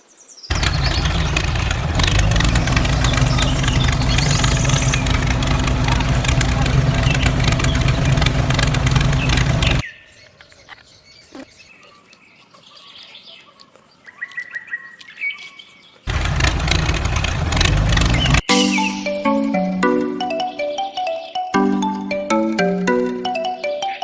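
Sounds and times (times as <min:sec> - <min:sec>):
engine running: 0:00.5 - 0:09.8, 0:16.1 - 0:18.5.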